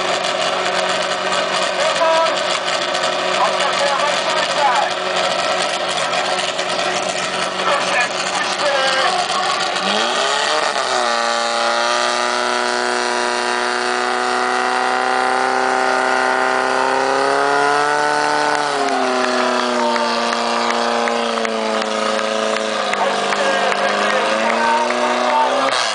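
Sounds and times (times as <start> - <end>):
fire pump engine revving: 0.0 - 25.9.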